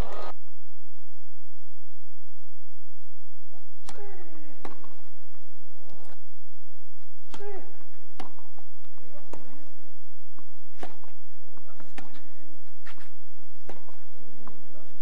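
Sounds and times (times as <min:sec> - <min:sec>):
racquets striking tennis ball: 0:03.8 - 0:05.1, 0:07.2 - 0:14.7.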